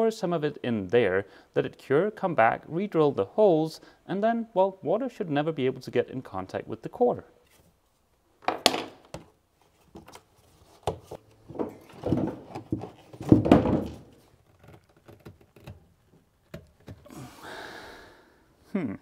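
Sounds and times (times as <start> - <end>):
knocks and clunks of rubber parts: 8.4 - 17.1.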